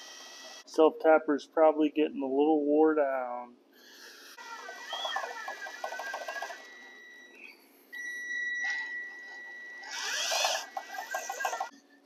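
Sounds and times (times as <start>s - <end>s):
cordless drill whining: 0.0s - 0.7s, 3.8s - 7.0s, 8.0s - 11.7s
screw grinding metal: 4.0s - 6.7s, 9.8s - 11.7s.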